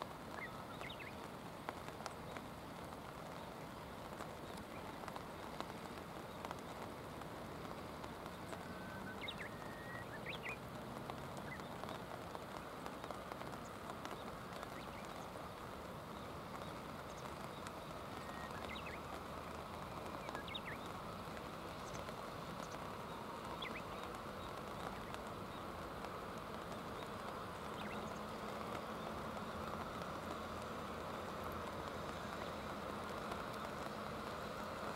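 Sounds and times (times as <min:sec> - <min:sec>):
rain on stones: 0:00.0 - 0:34.9
faint high bird calls: 0:00.3 - 0:01.3, 0:07.6 - 0:10.7, 0:11.4 - 0:25.8.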